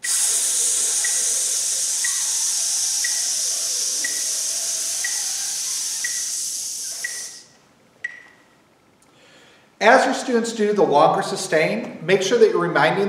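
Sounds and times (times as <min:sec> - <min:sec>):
person hissing breath through teeth: 0:00.0 - 0:07.5
soft ticks: 0:01.0 - 0:07.4.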